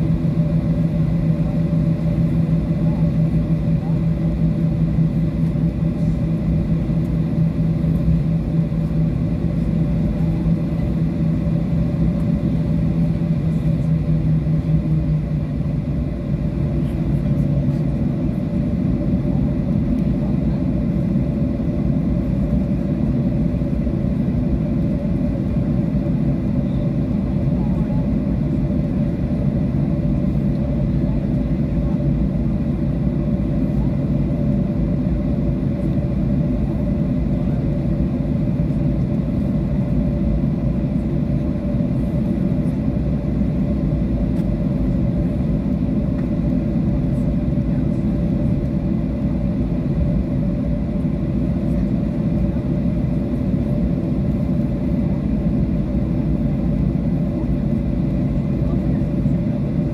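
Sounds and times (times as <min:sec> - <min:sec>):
jet engine cabin drone: 0:00.0 - 0:59.9
low taxiing rumble: 0:00.0 - 0:59.9.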